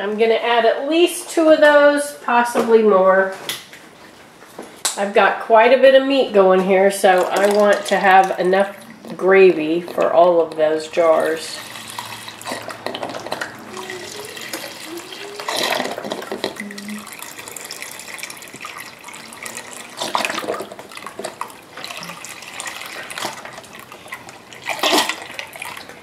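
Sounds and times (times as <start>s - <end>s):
liquid pouring into pot: 7.0s - 9.3s, 11.2s - 26.0s.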